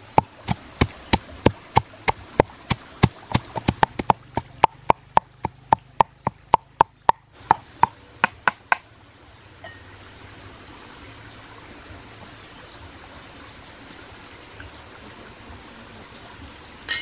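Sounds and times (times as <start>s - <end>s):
pestle pounding in a mortar: 0.1s - 8.8s.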